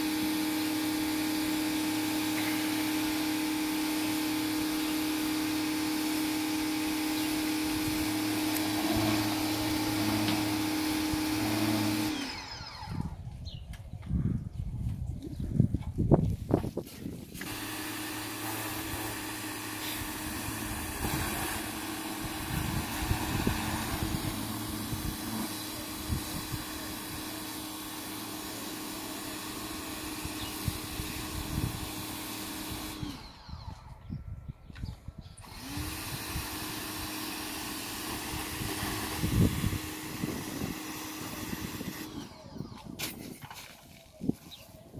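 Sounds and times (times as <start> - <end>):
pressure washer motor hum: 0.0 - 13.3, 17.3 - 34.1, 35.4 - 44.3
spray hissing: 17.4 - 33.0.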